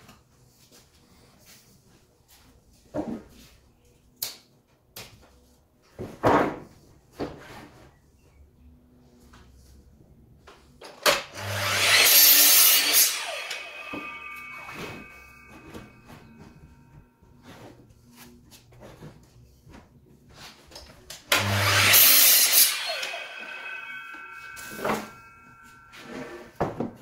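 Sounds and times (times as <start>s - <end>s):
mitre saw cutting wood: 11.2s - 16.3s, 21.3s - 26.5s.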